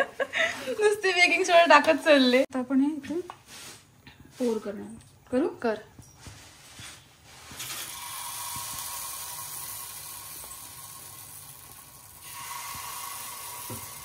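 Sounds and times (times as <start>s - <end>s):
batter sizzling in a hot pan: 7.4s - 14.0s.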